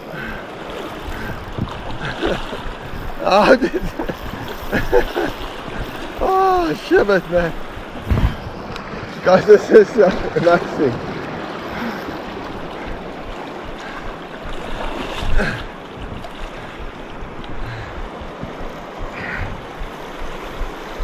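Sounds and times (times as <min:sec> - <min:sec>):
wind on microphone: 0:00.8 - 0:09.3, 0:10.1 - 0:21.0.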